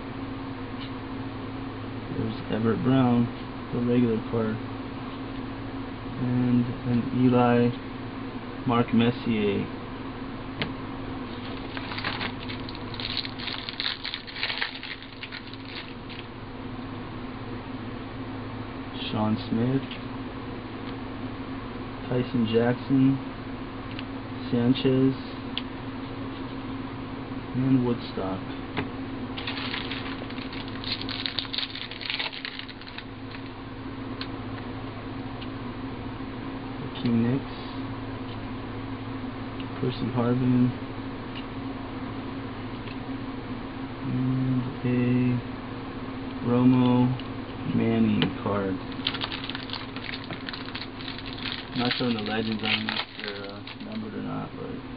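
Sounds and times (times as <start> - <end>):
low hum: 0.0 - 54.9
cards being handled: 11.4 - 16.3, 29.4 - 33.5, 48.9 - 54.0
foil wrapper crinkling: 11.4 - 16.3, 29.4 - 33.5, 48.9 - 54.0.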